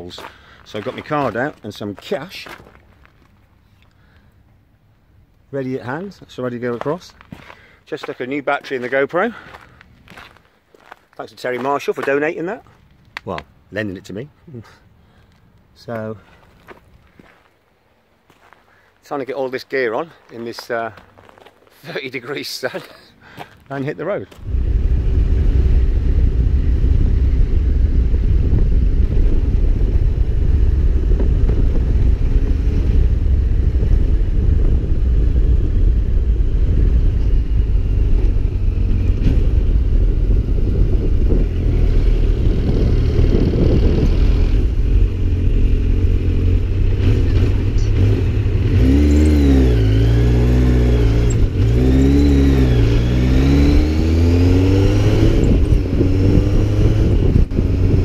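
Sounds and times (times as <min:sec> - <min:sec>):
motorcycle engine running: 0:24.4 - 0:58.0.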